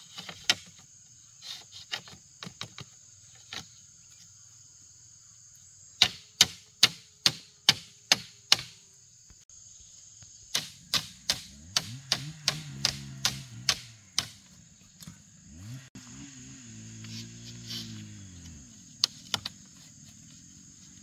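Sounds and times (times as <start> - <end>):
machete chopping bamboo: 6.0 - 8.8, 10.5 - 15.7, 17.1 - 19.6.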